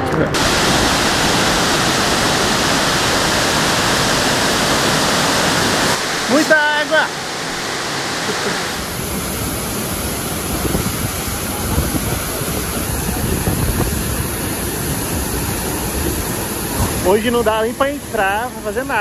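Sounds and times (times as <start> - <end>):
waterfall rushing: 0.3 - 19.0.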